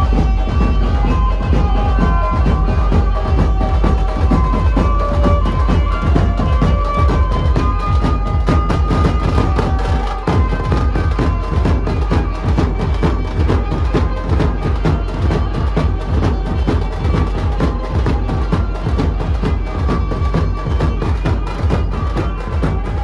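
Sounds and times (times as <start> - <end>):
fast dense drumming: 0.0 - 23.0.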